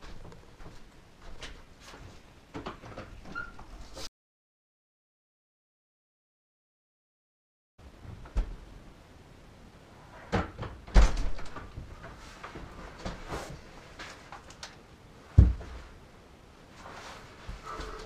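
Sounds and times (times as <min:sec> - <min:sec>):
door clicks and knocks: 0:10.3 - 0:11.7.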